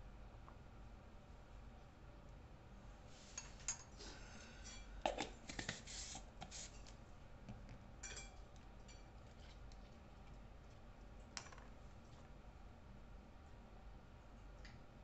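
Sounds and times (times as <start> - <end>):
containers clicking and knocking: 5.0 - 5.8.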